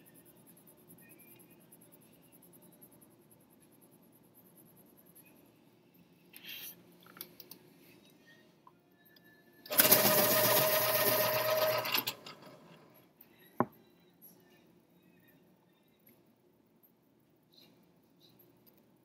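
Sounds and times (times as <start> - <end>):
small machine whirring: 9.7 - 13.0.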